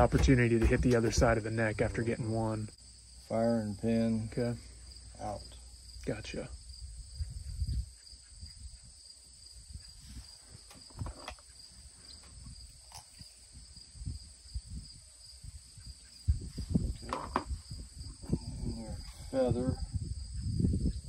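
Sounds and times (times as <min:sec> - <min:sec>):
insect trilling: 0:00.0 - 0:21.0
low rumbling: 0:16.3 - 0:21.0.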